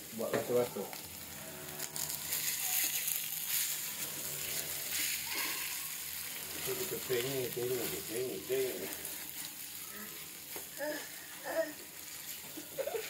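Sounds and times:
paste sizzling in oil: 0.0 - 13.0
spatula scraping pan: 1.3 - 10.8.

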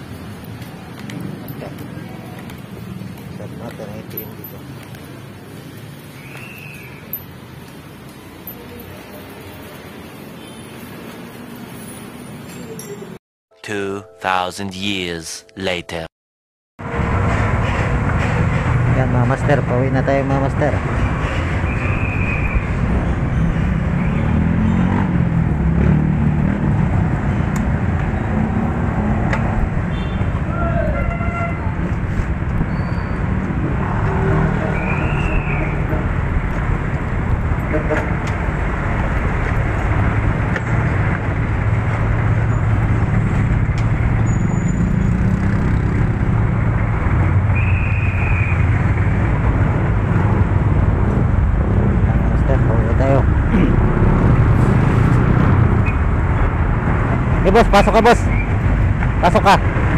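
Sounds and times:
street traffic: 0.0 - 13.2, 16.8 - 59.9
short high-pitched tone: 13.5 - 16.1.

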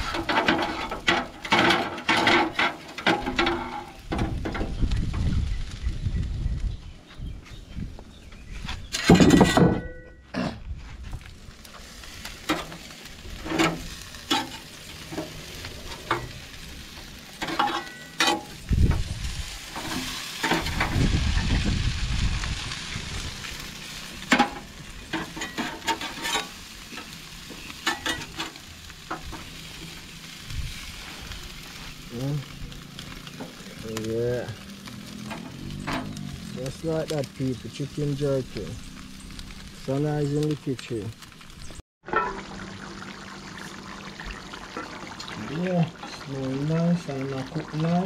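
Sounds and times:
metal spatula scraping grate: 0.0 - 4.6, 8.8 - 9.8, 11.8 - 18.6, 19.4 - 21.0, 24.0 - 29.8
chicken sizzling over charcoal: 0.0 - 9.4, 10.8 - 48.0.

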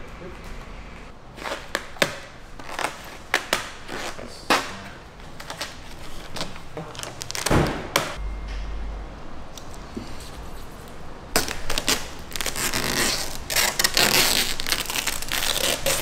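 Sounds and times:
vinyl film crackling and snapping: 5.4 - 8.2, 11.3 - 16.0.

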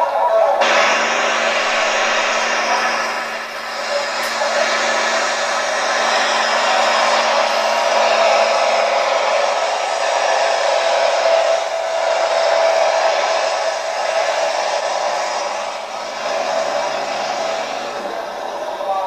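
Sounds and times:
tractor engine droning: 0.0 - 19.0
faint whine: 0.2 - 19.0.

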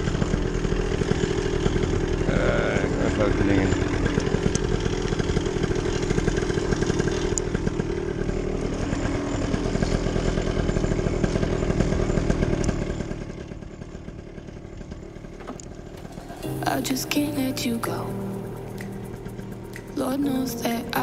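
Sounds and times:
paramotor engine running: 0.0 - 21.0.

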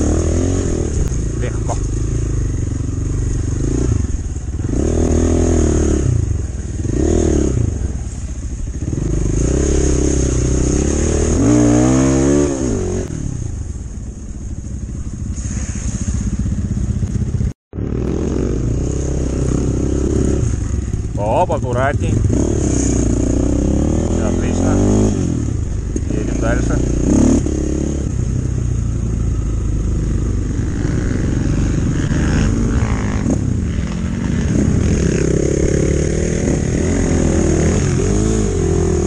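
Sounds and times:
dirt bike engines revving: 0.0 - 13.7, 15.0 - 39.0.

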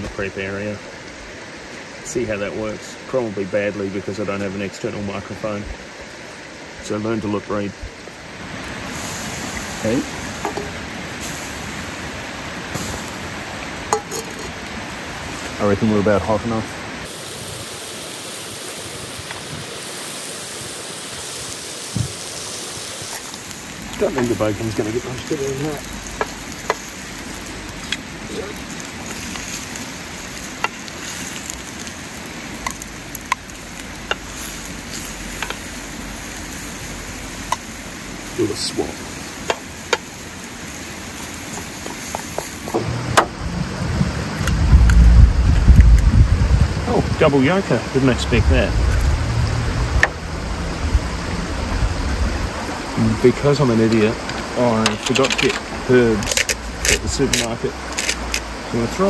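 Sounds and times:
bacon sizzling in a frying pan: 3.6 - 59.0
low rumble: 42.7 - 53.3
egg cracking: 56.2 - 58.5.

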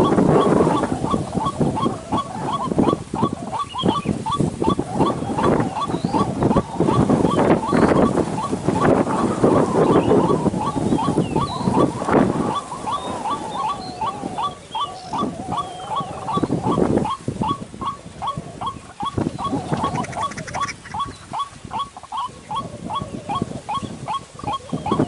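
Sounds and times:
waterhen calling: 0.0 - 25.0.

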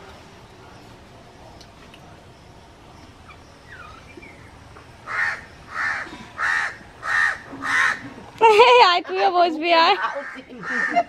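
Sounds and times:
crow cawing: 5.0 - 8.2, 10.0 - 11.0.

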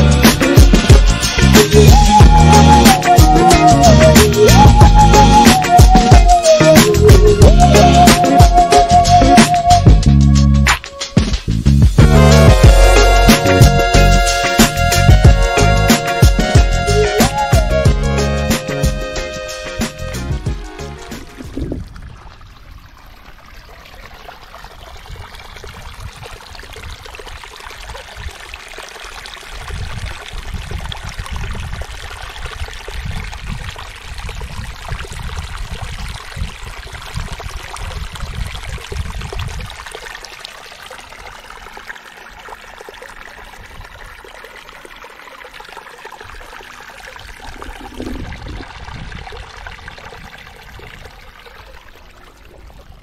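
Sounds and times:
water running and splashing: 0.0 - 10.1, 10.7 - 53.0
wind buffeting microphone: 21.2 - 22.7, 24.7 - 27.5, 29.6 - 39.9, 47.2 - 51.4.

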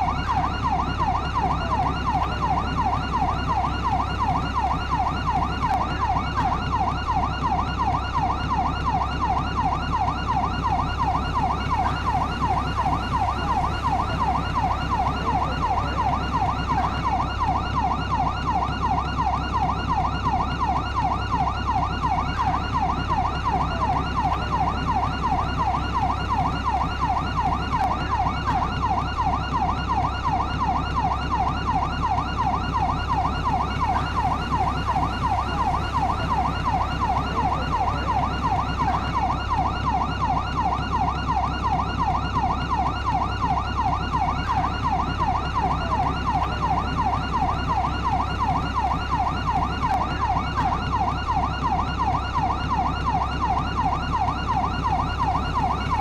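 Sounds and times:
police siren yelping: 0.0 - 56.0.

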